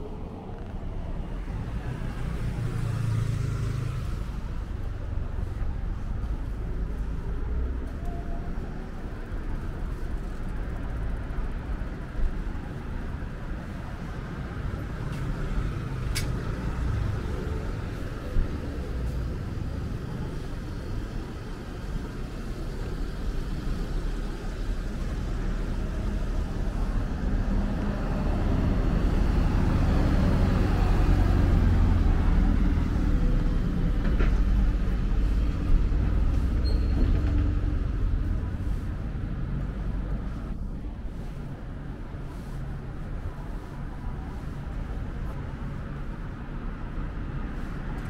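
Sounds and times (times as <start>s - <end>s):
city traffic noise: 0.0s - 48.0s
heavy vehicle engine rumble: 0.0s - 48.0s.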